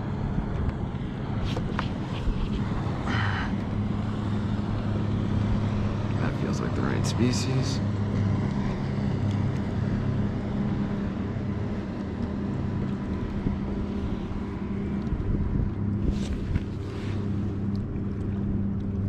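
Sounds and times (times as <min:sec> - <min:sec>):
low mechanical hum: 0:00.0 - 0:19.0
wind noise: 0:13.2 - 0:17.2.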